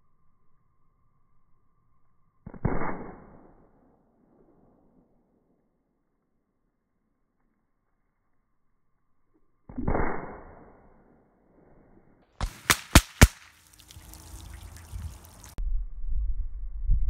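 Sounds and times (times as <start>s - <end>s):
rifle shot: 2.5s - 3.8s, 9.7s - 11.0s, 12.4s - 13.6s
sharp cracks: 12.4s - 14.5s
water gushing and splashing: 13.4s - 15.6s.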